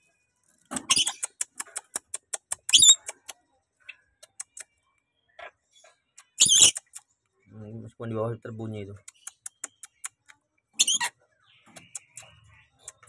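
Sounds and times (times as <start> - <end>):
parrot clicking: 1.0 - 3.4, 9.0 - 10.4.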